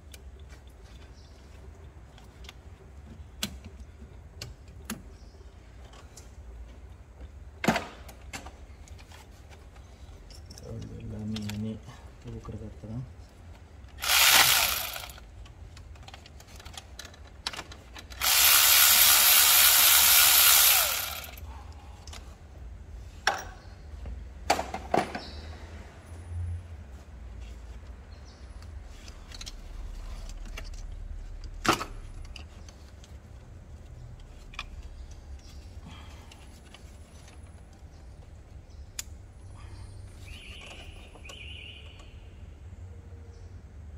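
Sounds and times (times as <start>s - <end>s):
power tool running: 14.0s - 15.2s, 18.2s - 21.4s.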